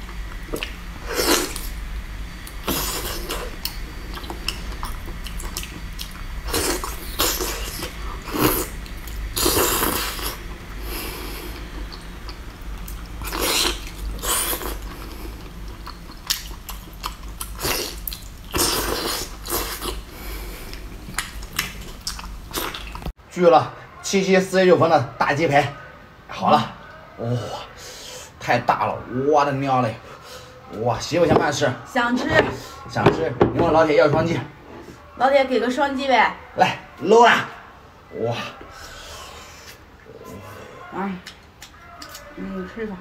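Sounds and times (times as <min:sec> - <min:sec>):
person biting and chewing: 0:02.4 - 0:10.4, 0:11.5 - 0:23.1.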